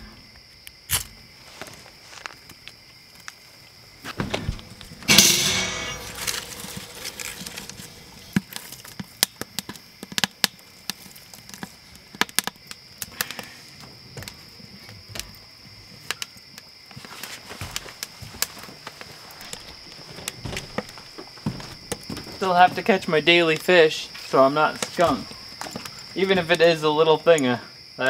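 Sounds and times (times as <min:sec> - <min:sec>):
wood fire crackling and popping: 0:02.3 - 0:27.5
wood knocking as fed in: 0:04.1 - 0:08.3.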